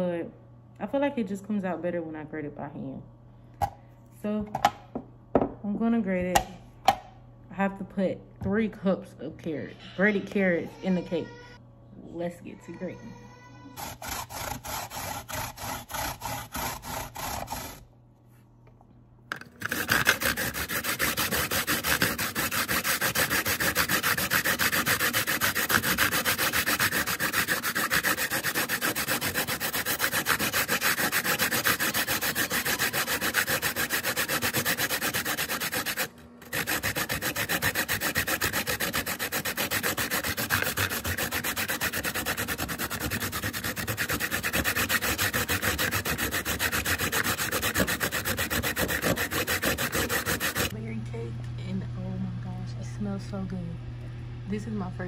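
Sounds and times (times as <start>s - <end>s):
carrot grating on metal grater: 13.7s - 17.9s, 19.4s - 50.8s.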